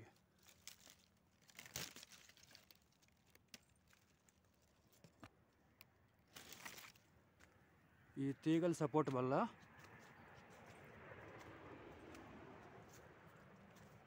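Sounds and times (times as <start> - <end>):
faint rustling and crinkling: 0.0 - 5.5, 6.2 - 7.6.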